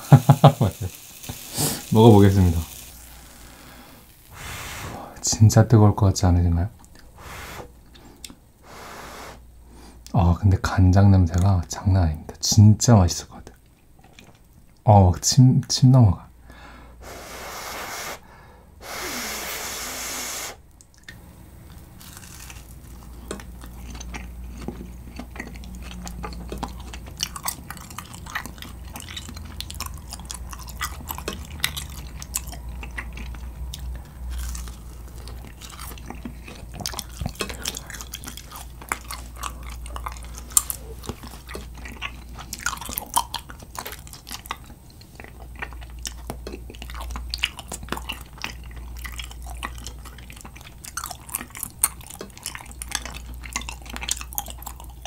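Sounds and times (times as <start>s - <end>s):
breathy rush: 3.1s - 5.2s
crunchy chewing: 20.8s - 55.0s.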